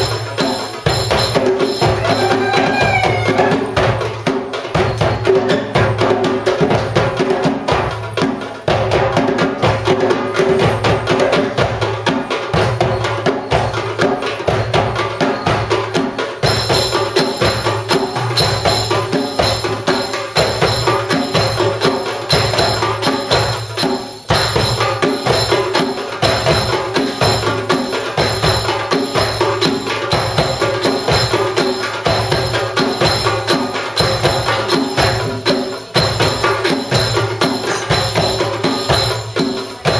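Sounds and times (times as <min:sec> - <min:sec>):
metallic jingling: 0:00.0 - 0:08.9, 0:09.6 - 0:39.9
hand drums playing fast rhythm: 0:00.0 - 0:39.9.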